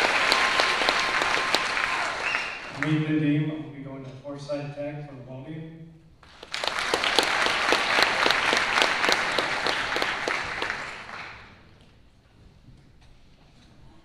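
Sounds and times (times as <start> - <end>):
nearby person clapping: 0.0 - 2.9, 6.2 - 11.7
audience applauding: 0.0 - 3.1, 6.2 - 11.7.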